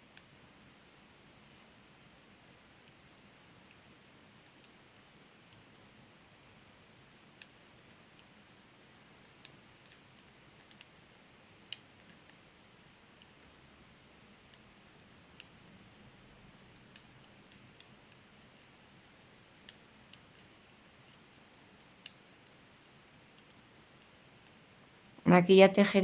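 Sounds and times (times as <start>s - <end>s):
knitting needles clicking: 2.8s - 5.7s, 7.2s - 8.5s, 9.2s - 24.7s.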